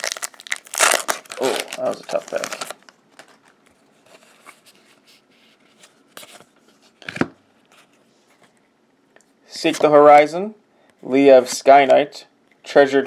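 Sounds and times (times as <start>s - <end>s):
trading cards rustling: 0.0s - 5.0s.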